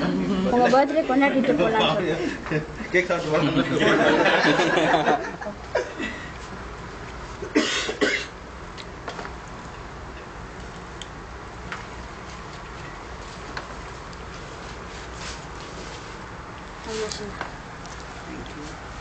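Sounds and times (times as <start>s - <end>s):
low room noise: 0.0s - 19.0s.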